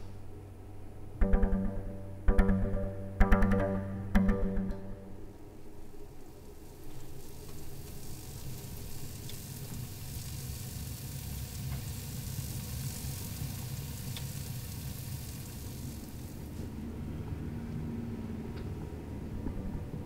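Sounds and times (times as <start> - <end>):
low steady hum: 0.0 - 9.0
food sizzling: 6.6 - 16.4.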